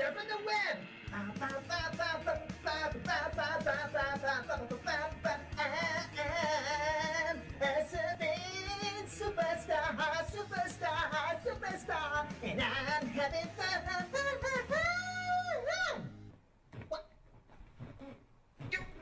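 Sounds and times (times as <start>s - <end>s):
high voice singing: 1.1s - 16.1s.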